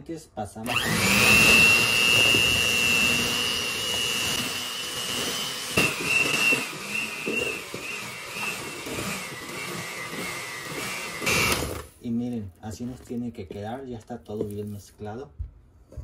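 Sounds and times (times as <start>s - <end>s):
electric hand mixer whining: 0.6s - 11.9s.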